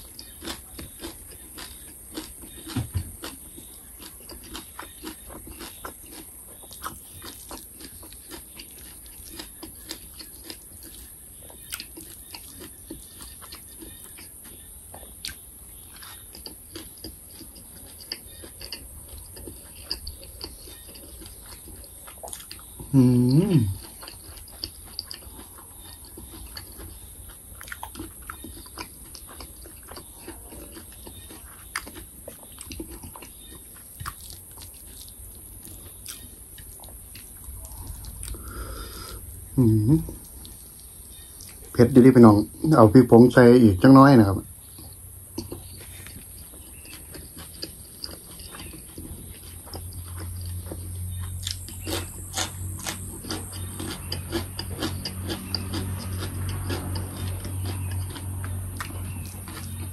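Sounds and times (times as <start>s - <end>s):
person chewing food: 0.0s - 42.8s, 44.0s - 59.9s
loud hummed vocal sound: 22.9s - 23.8s.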